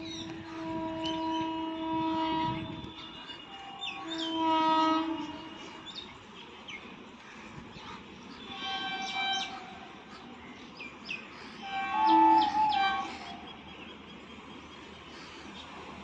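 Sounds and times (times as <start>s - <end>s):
electric locomotive horn: 0.0s - 6.0s, 8.4s - 10.1s, 11.6s - 13.7s
birds chirping: 0.0s - 16.0s.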